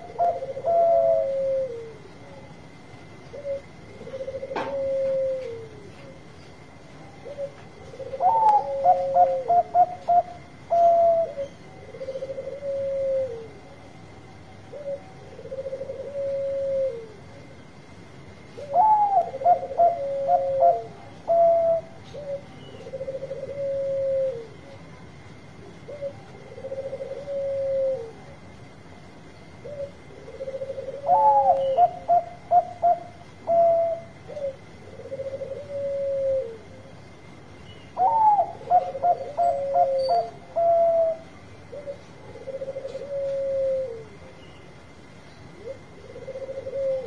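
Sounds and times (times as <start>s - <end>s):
faint steady high tone: 0.0s - 6.2s, 18.6s - 47.0s
dove soft rolling coos: 0.0s - 17.6s, 18.4s - 37.2s, 38.0s - 47.0s
dove stuttering song: 0.0s - 47.0s.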